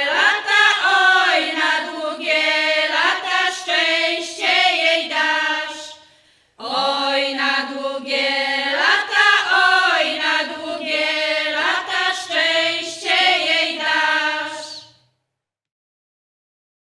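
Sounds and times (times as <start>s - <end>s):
women singing unaccompanied: 0.0s - 6.0s, 6.6s - 15.0s.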